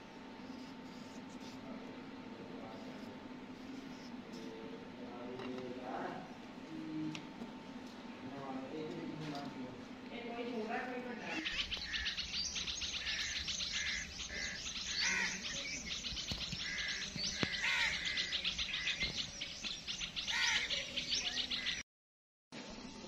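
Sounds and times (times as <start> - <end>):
small birds chirping: 10.9 - 21.8.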